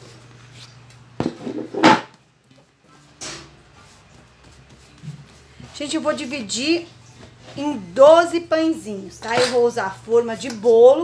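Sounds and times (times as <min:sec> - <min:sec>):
plastic bowl knocking on worktop: 0:01.2 - 0:02.1.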